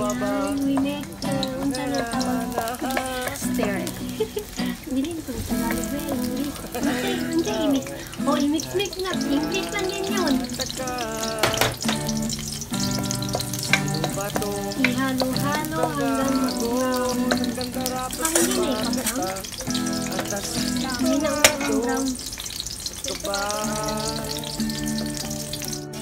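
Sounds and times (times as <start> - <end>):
background music with melody: 0.0 - 26.0
onion and garlic sizzling in oil: 0.0 - 26.0
wooden spoon clicking against pan: 11.4 - 16.0.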